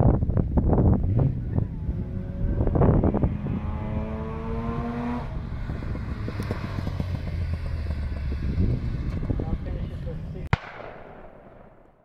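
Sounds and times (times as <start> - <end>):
wind buffeting microphone: 0.0 - 10.8
rotary engine revving: 0.9 - 10.4.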